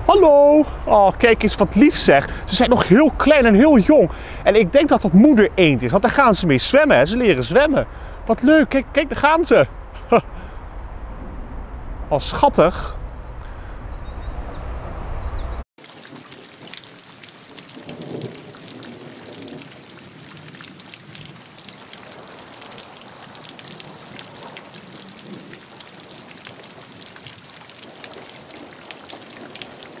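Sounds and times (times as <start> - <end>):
low rumble: 6.4 - 12.3
rain falling on foliage: 15.8 - 30.0.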